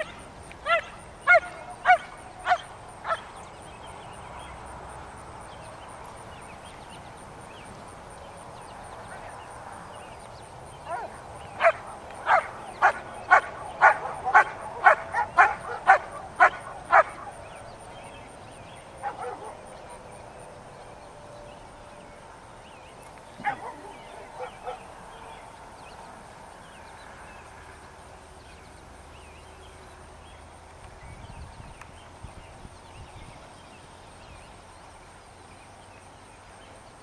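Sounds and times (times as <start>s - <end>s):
dog barking: 0.7s - 3.2s, 10.9s - 17.3s, 19.0s - 19.6s, 23.4s - 24.8s.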